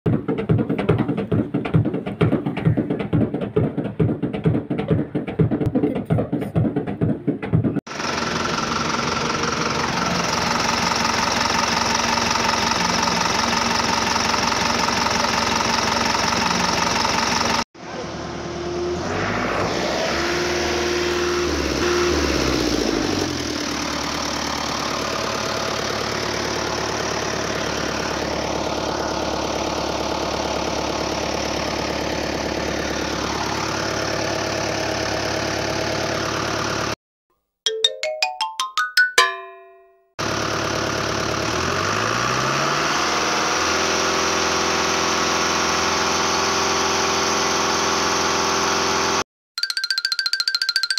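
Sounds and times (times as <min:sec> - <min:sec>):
percussive music: 0:00.1 - 0:07.8, 0:37.7 - 0:40.1, 0:49.6 - 0:50.9
truck engine running: 0:00.2 - 0:18.8, 0:20.5 - 0:37.0, 0:40.2 - 0:49.2.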